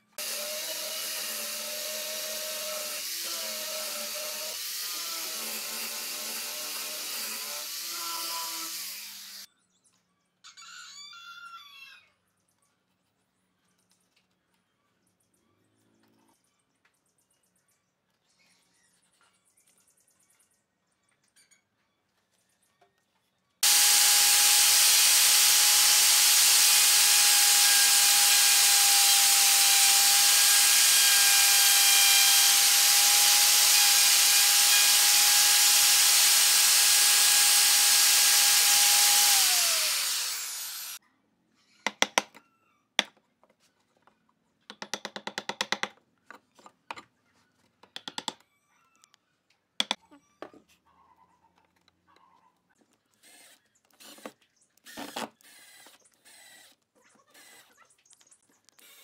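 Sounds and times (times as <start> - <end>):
router whining and cutting wood: 0.1 - 9.5, 23.6 - 41.0.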